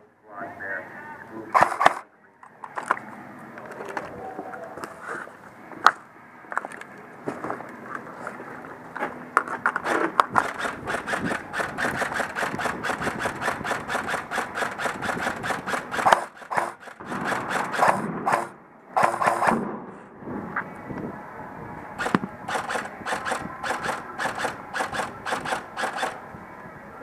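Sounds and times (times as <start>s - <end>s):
airsoft rifle rapid shots: 1.6s - 2.0s, 9.8s - 19.6s, 22.0s - 26.2s.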